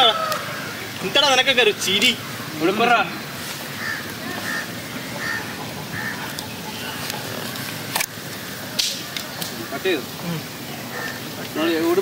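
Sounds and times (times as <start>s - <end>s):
waterfowl calling: 0.0s - 1.4s, 2.0s - 10.0s, 10.7s - 11.8s
steady background hiss: 0.0s - 12.0s.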